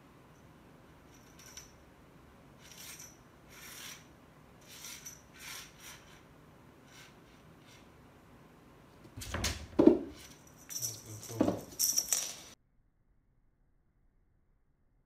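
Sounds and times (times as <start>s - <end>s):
feather toy scratchy rustles: 2.6s - 7.9s.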